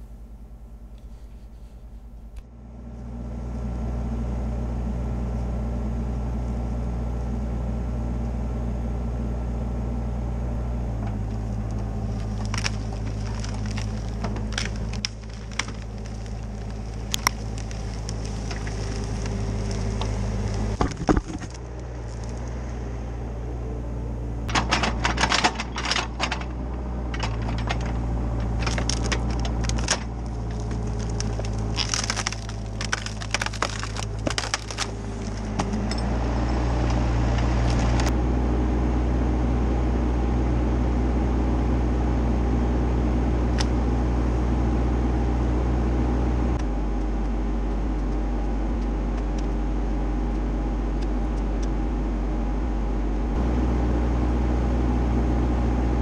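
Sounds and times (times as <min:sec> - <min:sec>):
excavator diesel engine running: 0:02.0 - 0:56.0
branches crackling and snapping: 0:11.1 - 0:38.2.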